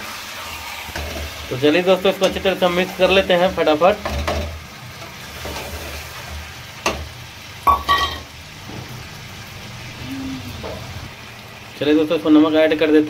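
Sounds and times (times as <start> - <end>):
frying sizzle: 0.0 - 13.0
metal spatula stirring in pan: 2.1 - 7.1.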